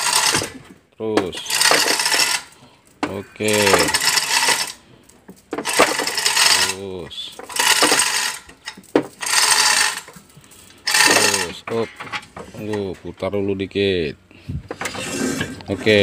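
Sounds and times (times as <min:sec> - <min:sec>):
hoist chain rattling: 0:00.0 - 0:00.6, 0:01.3 - 0:02.6, 0:03.4 - 0:12.8
ratchet clicking: 0:01.4 - 0:02.5, 0:07.4 - 0:10.2, 0:10.9 - 0:11.5.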